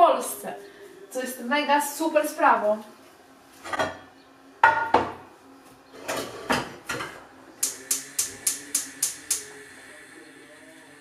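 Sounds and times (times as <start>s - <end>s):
pots clanking on a hob: 3.6s - 5.2s, 6.0s - 7.2s
spark igniter clicking: 7.6s - 9.5s.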